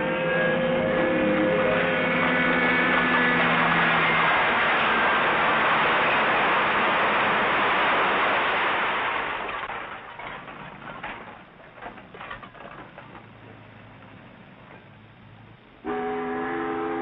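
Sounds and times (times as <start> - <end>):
rubble pouring down a heap: 3.3 - 13.2.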